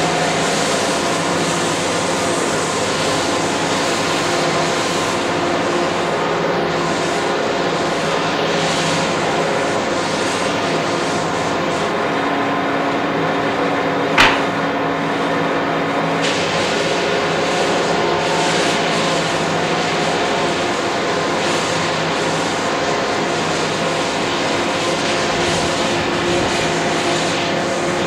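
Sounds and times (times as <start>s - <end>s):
sharp click: 14.2s - 14.7s.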